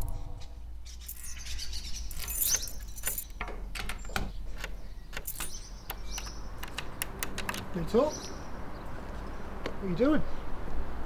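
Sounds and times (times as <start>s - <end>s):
small birds chirping: 0.7s - 10.6s.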